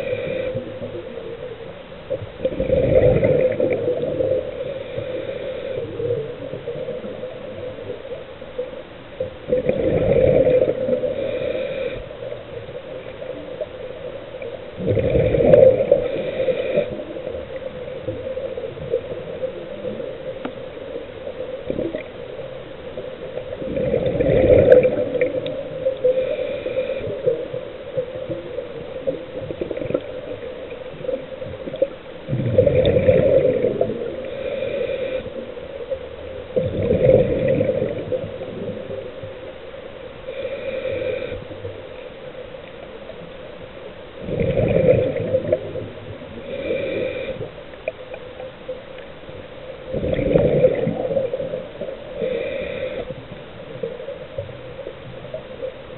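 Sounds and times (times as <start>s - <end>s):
steady hum: 0.0s - 55.9s
bubbling exhalations: 2.4s - 4.4s, 9.5s - 11.5s, 14.8s - 16.9s, 23.6s - 25.8s, 32.3s - 34.5s, 36.6s - 38.7s, 44.2s - 45.9s, 49.9s - 51.6s
hissing regulator inhalations: 4.6s - 6.2s, 26.0s - 27.4s, 34.2s - 35.4s, 40.3s - 41.5s, 46.4s - 47.6s, 52.1s - 53.4s.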